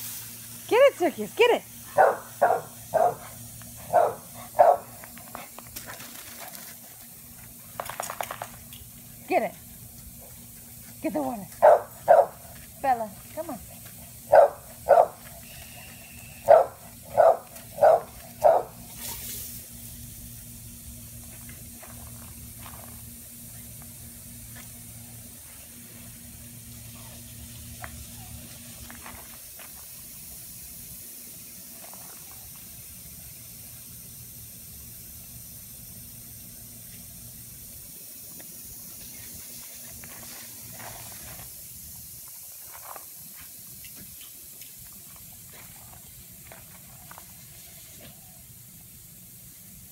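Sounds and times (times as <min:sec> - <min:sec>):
lawn sprinkler water spray hiss: 0:00.0 - 0:49.9
dog barking: 0:02.0 - 0:03.2, 0:03.9 - 0:04.9, 0:11.6 - 0:12.4, 0:14.3 - 0:15.2, 0:16.4 - 0:18.8.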